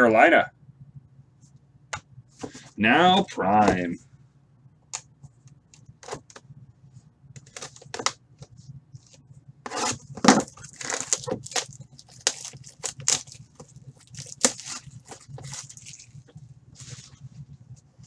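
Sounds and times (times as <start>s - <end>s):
cardboard crackling: 7.4s - 16.1s
plastic wrap crinkling: 9.8s - 17.3s.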